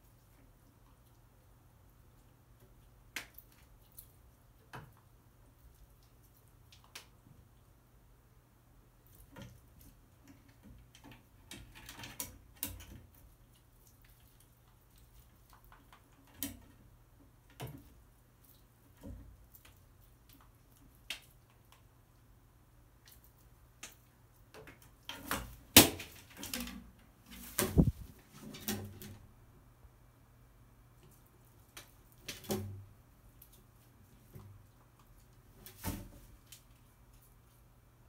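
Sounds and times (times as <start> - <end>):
bird scuffling on wooden perches: 24.6 - 29.2.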